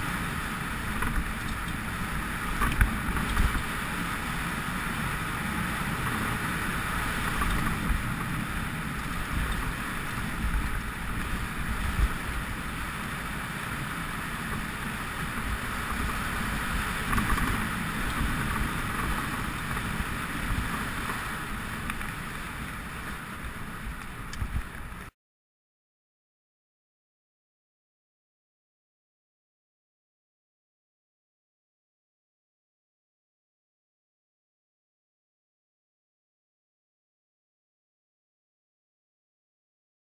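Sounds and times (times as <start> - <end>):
bike tyres rumbling on dirt: 0.0 - 25.1
wind noise on microphone: 0.0 - 25.1.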